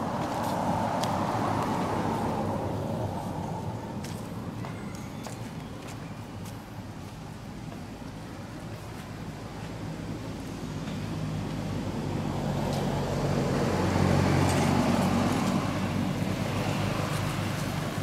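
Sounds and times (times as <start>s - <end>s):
vehicle driving past: 11.1s - 18.0s.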